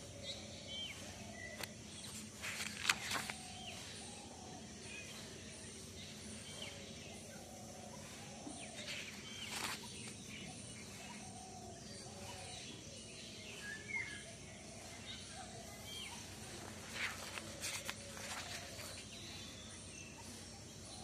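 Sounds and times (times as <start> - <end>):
birds chirping: 0.0 - 21.0
notebook pages turning: 1.5 - 3.7, 8.8 - 10.2, 16.7 - 19.1.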